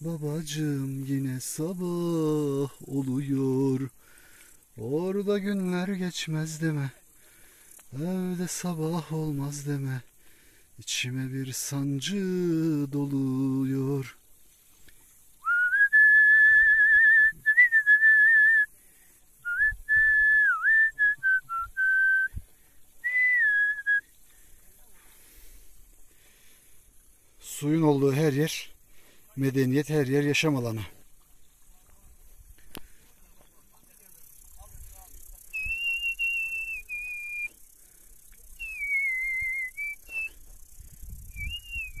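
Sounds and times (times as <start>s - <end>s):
man whistling a melody: 15.4s - 18.7s, 19.4s - 22.4s, 23.0s - 24.1s, 35.5s - 37.6s, 38.5s - 42.0s.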